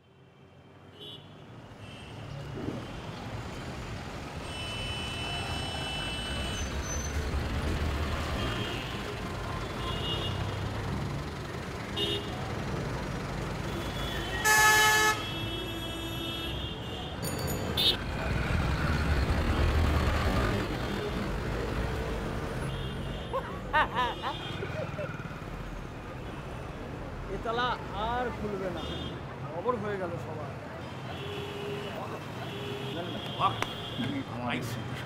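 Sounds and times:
street traffic rumble: 0.0s - 35.0s
vehicle horn: 12.0s - 12.4s, 13.7s - 17.2s.

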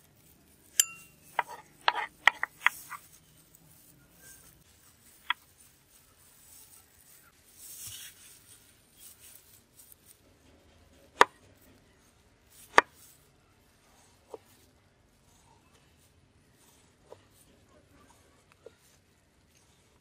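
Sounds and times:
knife slicing a tomato: 0.7s - 3.1s, 12.5s - 13.1s.

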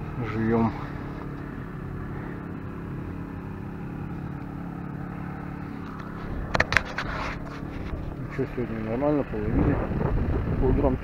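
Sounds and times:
engine running with low hum: 0.0s - 11.0s.

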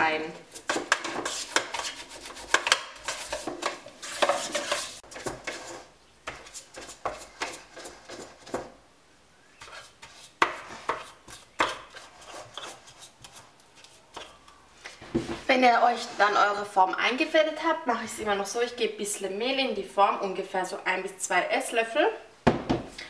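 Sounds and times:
brush tapping and scraping metal: 0.5s - 8.8s.

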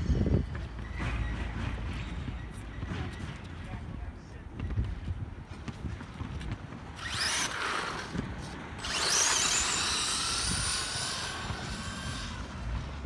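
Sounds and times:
toy car electric motor whining: 7.0s - 8.2s, 8.8s - 13.0s.

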